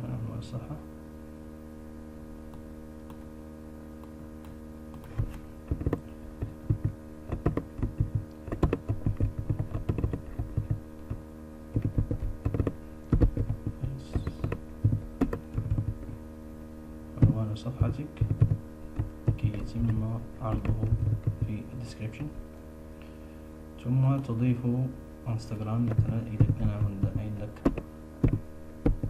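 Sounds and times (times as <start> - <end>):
steady electrical hum: 0.0 - 29.0
computer keyboard typing: 4.4 - 16.2, 18.2 - 21.6, 25.8 - 29.0.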